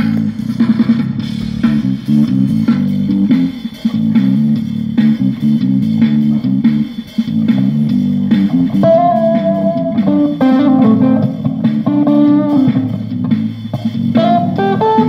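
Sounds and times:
guitar riff of low notes: 0:01.2 - 0:04.5, 0:08.2 - 0:13.3, 0:14.2 - 0:15.0.

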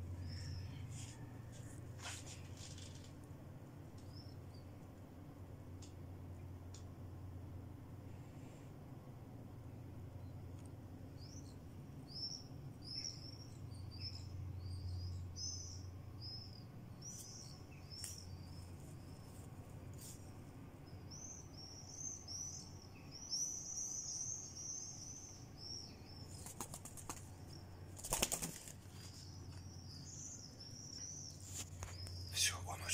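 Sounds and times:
swifts calling: 0:21.0 - 0:32.9
bird wings beating: 0:26.3 - 0:29.2.

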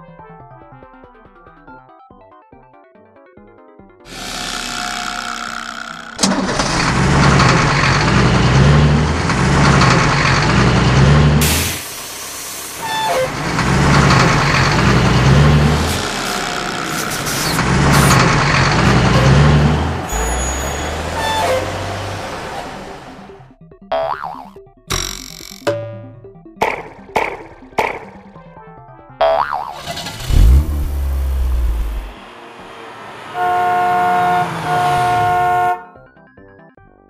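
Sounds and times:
heavy truck engine revving: 0:04.1 - 0:23.5, 0:29.8 - 0:35.8.

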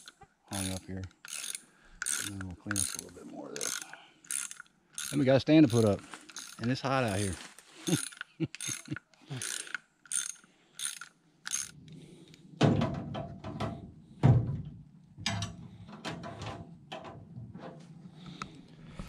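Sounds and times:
ratchet clicks: 0:00.0 - 0:07.2, 0:08.0 - 0:11.8
metal clunks and knocks: 0:12.6 - 0:17.8.

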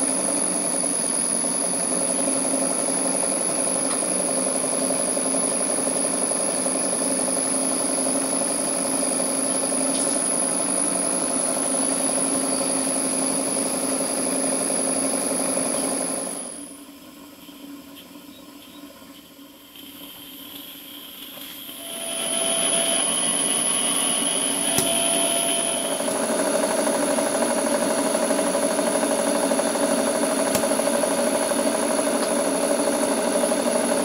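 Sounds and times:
model steam engine running: 0:00.0 - 0:16.6, 0:19.8 - 0:34.0
faint high whistle: 0:21.7 - 0:26.1.

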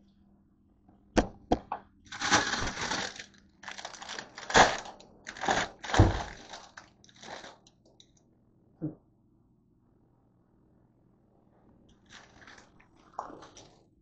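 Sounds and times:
plastic bag crinkling: 0:02.1 - 0:07.7, 0:12.0 - 0:13.8.

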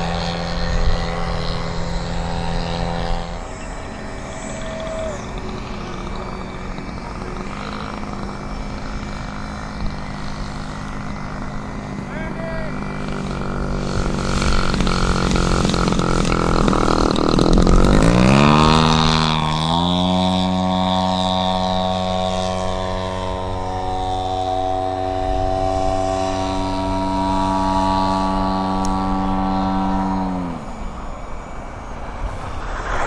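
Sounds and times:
model plane engine revving: 0:00.0 - 0:33.0.

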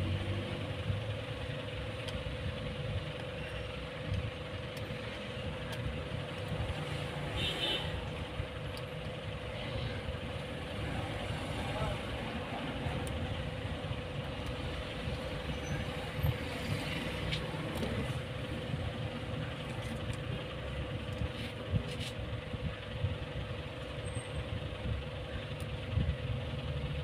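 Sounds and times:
background rumble and hiss: 0:00.0 - 0:27.0
constant hum: 0:00.0 - 0:27.0
faint clicks and taps: 0:02.0 - 0:02.3.

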